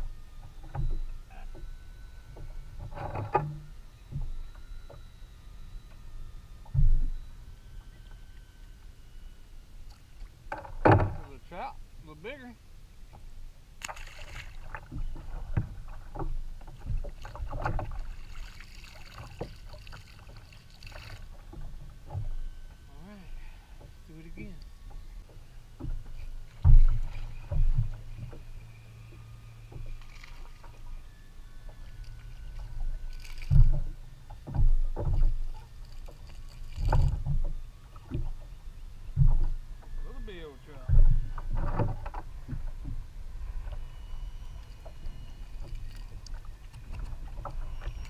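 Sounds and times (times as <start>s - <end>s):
steady low rumble: 5.3s - 48.0s
knocks against kayak hull: 10.5s - 11.3s, 25.8s - 28.4s, 40.9s - 43.0s.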